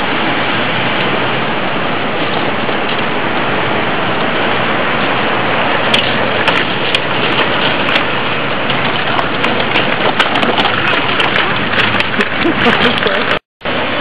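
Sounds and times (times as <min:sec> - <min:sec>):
road traffic passing: 0:00.0 - 0:14.0.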